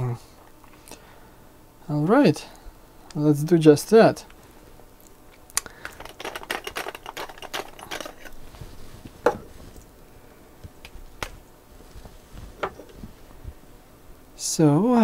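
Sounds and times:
plastic clicks and rattles: 5.6s - 8.4s.

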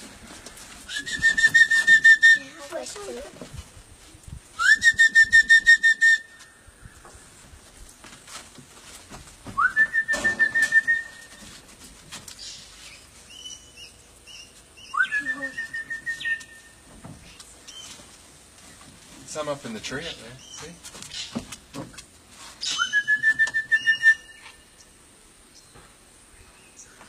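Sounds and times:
person whistling calls: 0.9s - 2.6s, 4.6s - 6.4s, 9.6s - 11.4s, 14.9s - 16.7s, 22.6s - 24.6s.

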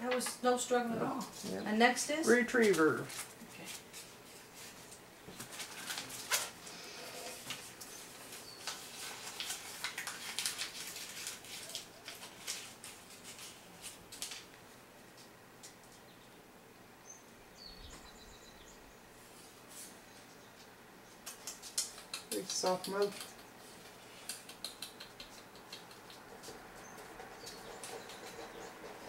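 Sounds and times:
paper ball crinkling: 7.3s - 14.6s.

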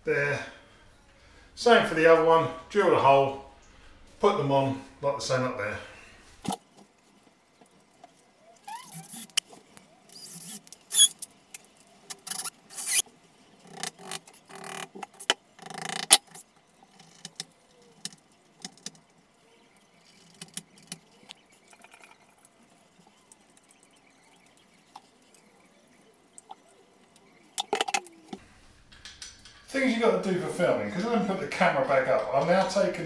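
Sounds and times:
metal fixings clicking: 27.6s - 29.8s.

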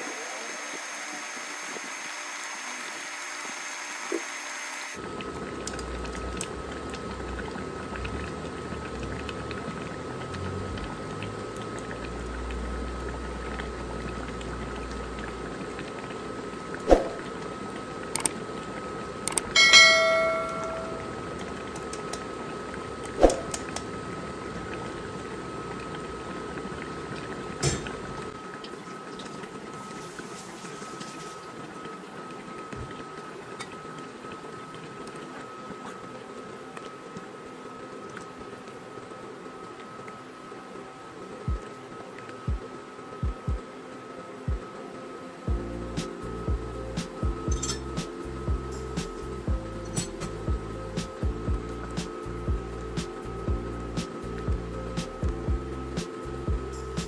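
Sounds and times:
steady thin hum: 0.0s - 57.0s
broth simmering and bubbling: 5.0s - 57.0s
ringing metallic clang: 19.6s - 21.2s.

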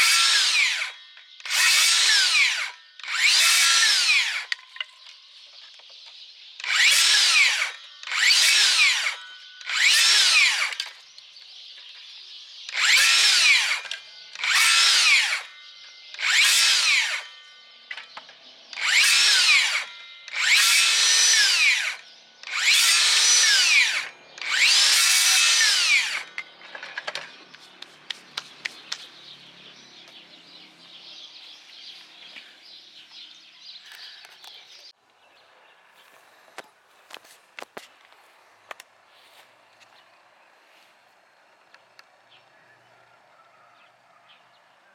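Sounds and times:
circular saw cutting branches: 0.0s - 5.0s, 6.5s - 32.5s.

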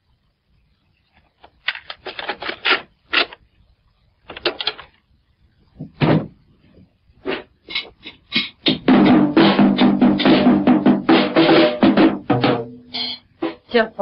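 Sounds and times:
loud knock: 5.8s - 6.4s.

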